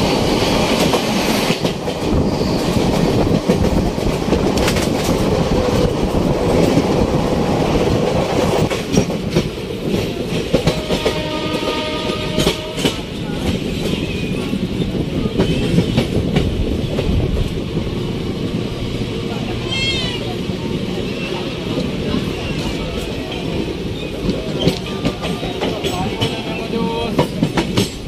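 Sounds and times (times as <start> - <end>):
train wheels rumbling: 0.0 - 28.0
wheels clacking over rail joints: 21.6 - 28.0.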